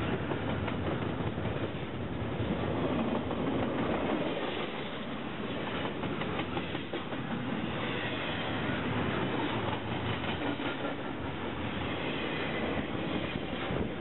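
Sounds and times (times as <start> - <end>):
wheels clicking over rail joints: 0.0 - 7.6, 9.2 - 11.6
freight train wheels rumbling: 0.0 - 14.0.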